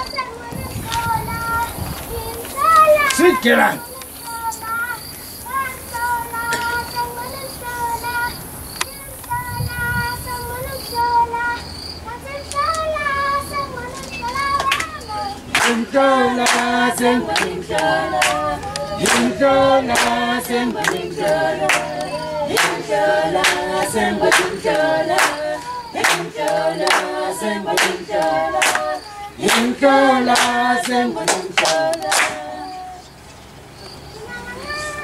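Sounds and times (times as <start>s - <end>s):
children's choir singing: 0.0s - 35.0s
handclaps: 14.3s - 22.8s, 23.4s - 29.7s, 30.3s - 32.5s.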